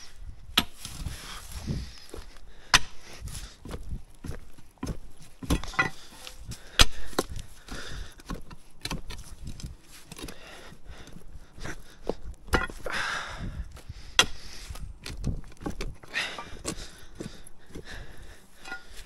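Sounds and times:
digging tool striking earth and stone: 0:00.5 - 0:01.1, 0:02.6 - 0:03.0, 0:03.6 - 0:10.4, 0:12.4 - 0:12.9, 0:14.1 - 0:17.8, 0:18.5 - 0:19.0.

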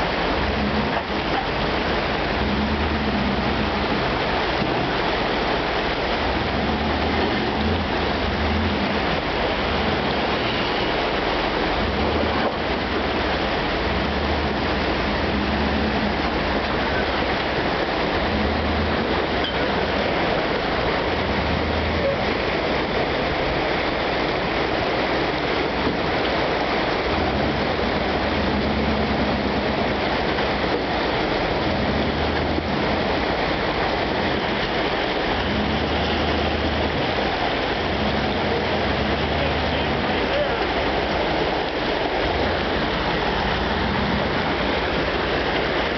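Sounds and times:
pickup truck engine rumble: 0:00.0 - 0:45.9
rushing creek water: 0:00.0 - 0:45.9.

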